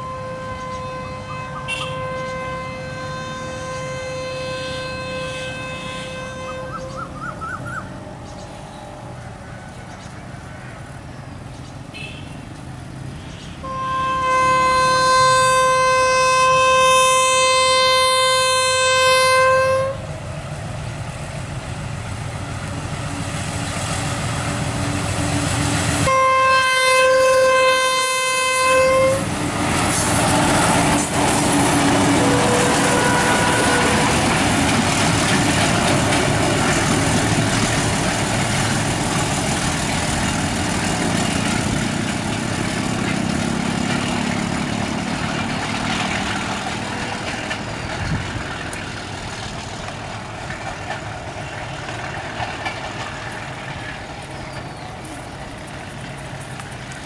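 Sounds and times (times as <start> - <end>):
locomotive horn blasts: 0.0 - 7.2, 13.6 - 20.1, 26.0 - 34.8
train running noise: 0.0 - 57.0.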